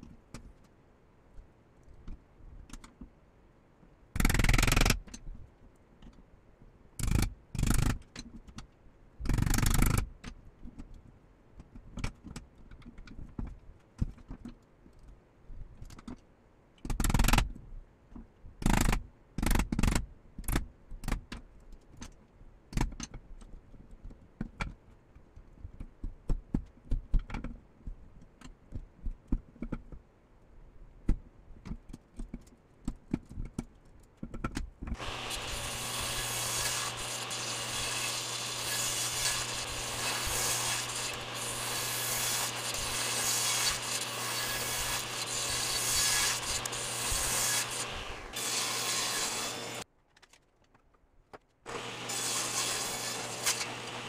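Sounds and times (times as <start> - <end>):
table saw motor humming: 35.0 - 49.8, 51.7 - 54.0.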